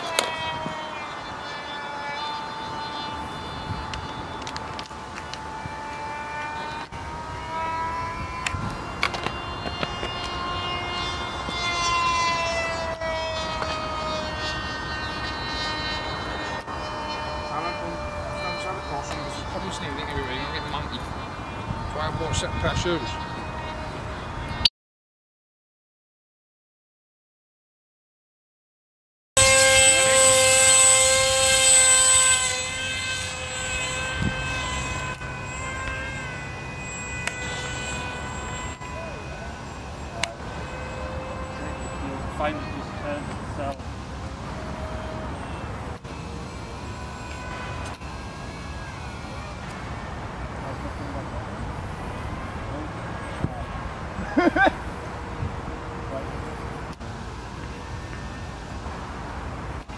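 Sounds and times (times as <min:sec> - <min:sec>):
wind noise on microphone: 0:00.0 - 0:01.8, 0:02.6 - 0:24.7, 0:32.0 - 0:50.5, 0:51.7 - 0:55.9
model plane electric motor whining: 0:00.0 - 0:24.6, 0:29.4 - 0:59.9.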